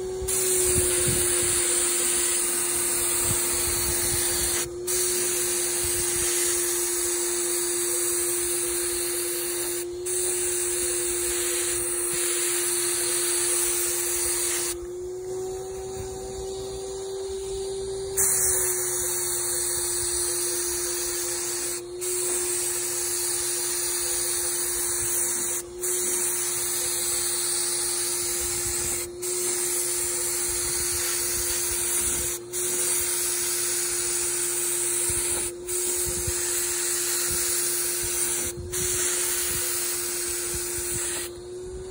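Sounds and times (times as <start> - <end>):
spray gun hissing: 0.0 - 41.4
paint sprayer turbine whine: 0.0 - 41.9.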